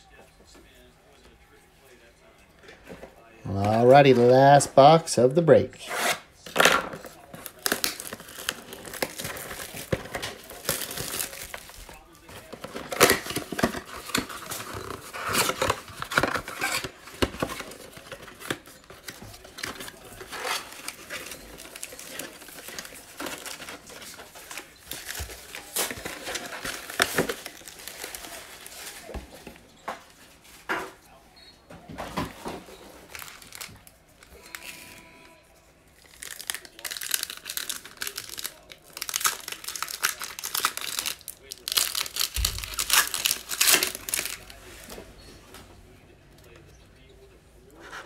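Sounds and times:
card packs handled: 2.6s - 30.7s, 31.9s - 45.2s
wrapper crinkling and tearing: 6.5s - 29.1s, 33.0s - 35.3s, 35.9s - 44.9s.

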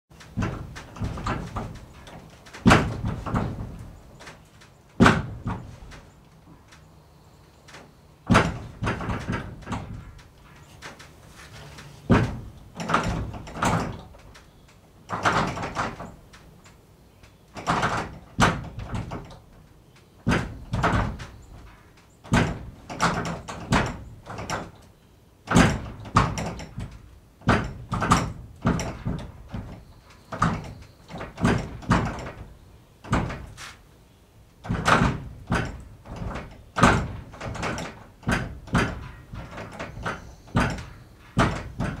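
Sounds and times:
barn door banging and rattling: 0.1s - 6.9s, 7.6s - 42.0s.

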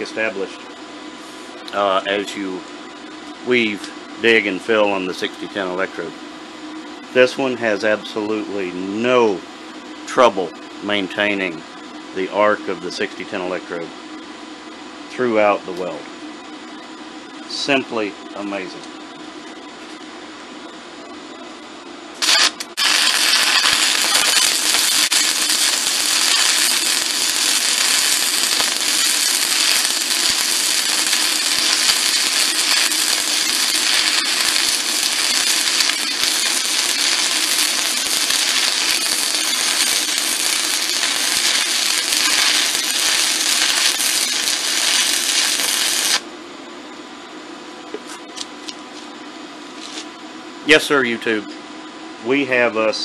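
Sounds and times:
welding arc crackling hiss: 0.0s - 0.6s, 22.2s - 46.3s.

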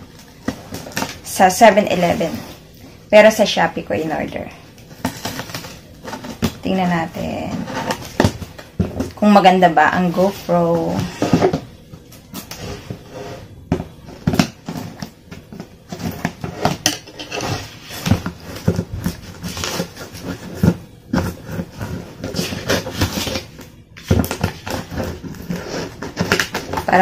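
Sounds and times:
cardboard box knocking and scraping: 13.7s - 27.0s.

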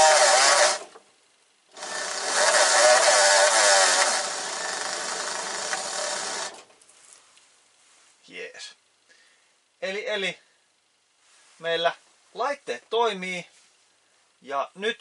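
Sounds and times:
electric motor whine: 0.0s - 0.9s, 1.7s - 6.6s.

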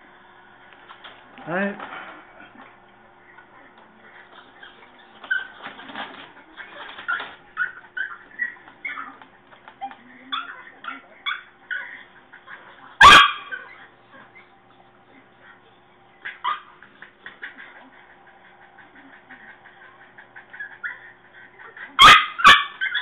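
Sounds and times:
small dog whimpering yips: 22.0s - 23.0s.

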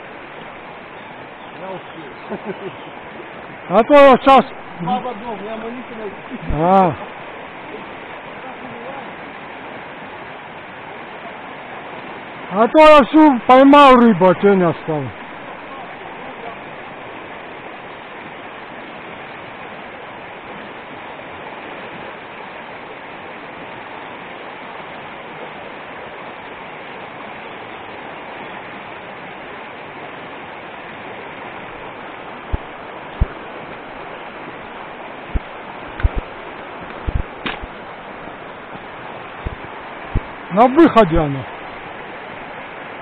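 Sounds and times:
river rushing over rocks: 0.0s - 43.0s
sharp knocks: 32.5s - 33.4s, 35.3s - 37.8s, 39.4s - 40.4s.

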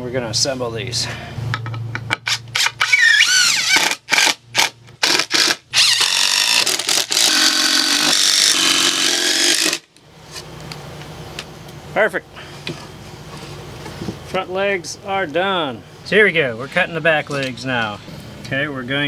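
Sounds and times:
cordless drill driving screws: 2.3s - 9.8s.

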